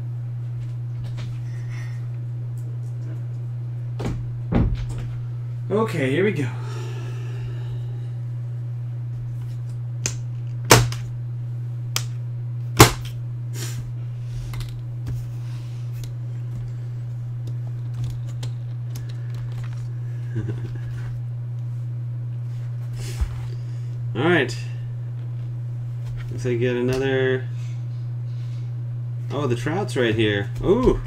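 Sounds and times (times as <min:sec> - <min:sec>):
case handling noise: 0:17.6 - 0:19.9.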